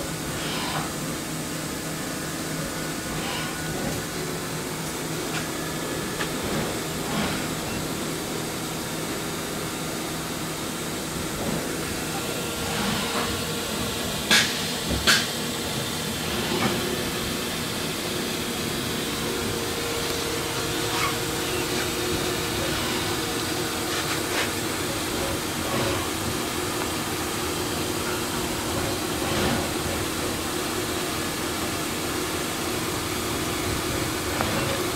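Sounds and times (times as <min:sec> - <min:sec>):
cooling fans hissing: 0:00.0 - 0:34.9
stepper motors humming: 0:10.2 - 0:34.9.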